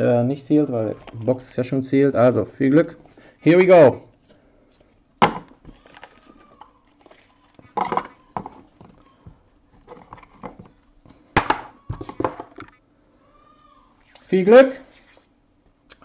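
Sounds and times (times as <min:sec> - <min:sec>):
cards handled with rustles and scrapes: 0:14.0 - 0:15.3.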